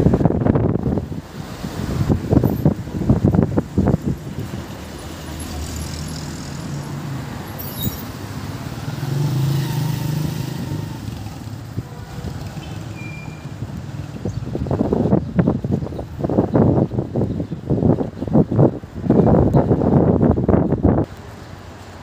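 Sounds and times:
wind thumps on microphone: 0.0s - 4.8s
cars driving past: 1.1s - 15.2s.

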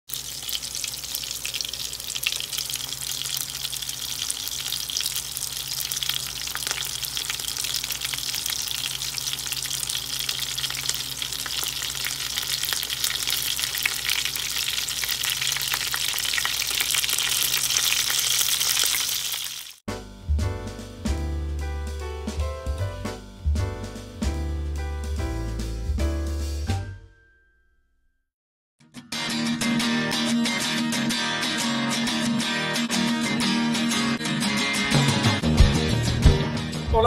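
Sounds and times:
patties sizzling in frying pan: 0.1s - 19.8s.

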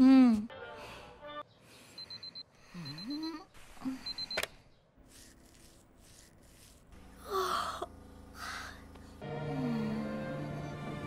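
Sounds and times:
alarm clock beeping: 1.9s - 4.5s
girl groaning sleepily: 7.2s - 10.2s.

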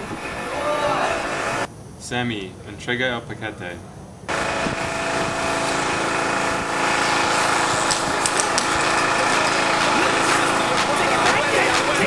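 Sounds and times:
small engine droning: 4.3s - 12.0s.

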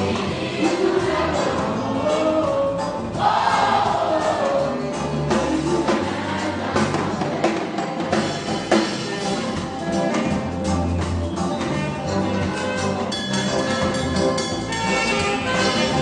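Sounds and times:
choir singing gospel: 0.0s - 10.6s.

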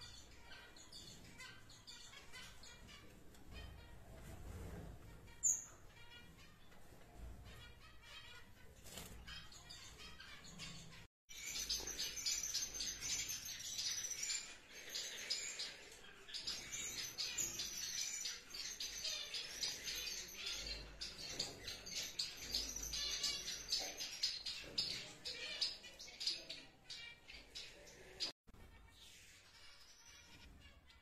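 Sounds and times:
finches chirping: 7.5s - 28.3s.

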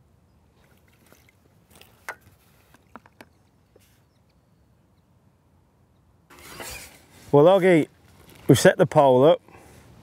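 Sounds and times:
low steady background noise: 0.0s - 10.0s
fishing tackle clicks and taps: 1.1s - 3.4s.

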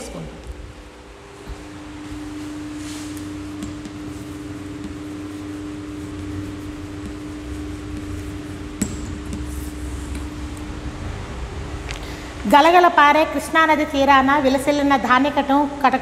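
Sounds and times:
room hum and hiss: 0.0s - 16.0s
chalk writing on blackboard: 2.4s - 10.4s.

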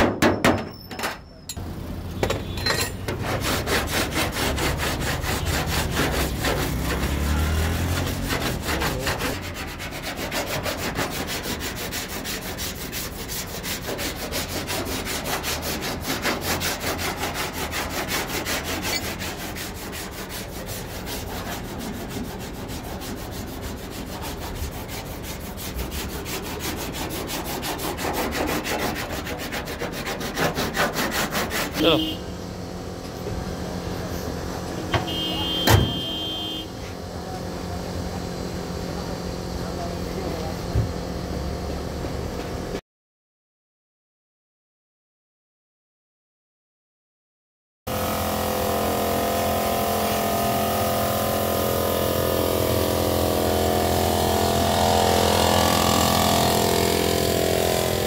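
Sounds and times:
cloth rubbing on car paint: 3.2s - 32.2s.

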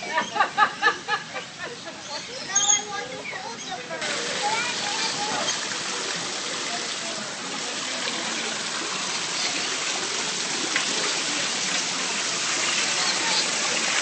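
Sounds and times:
waterfall splashing into pond: 4.0s - 14.0s.

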